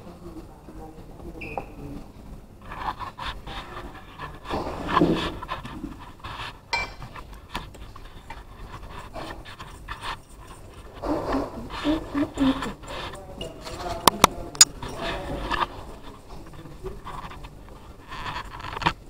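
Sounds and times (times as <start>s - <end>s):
rubbing noise on microphone: 1.8s - 19.0s
cutlery scraping on plates: 4.3s - 19.0s.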